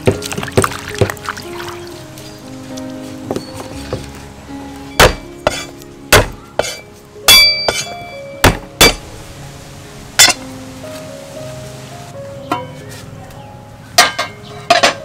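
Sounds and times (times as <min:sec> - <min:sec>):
cleaver chopping on wooden board: 0:05.0 - 0:06.8.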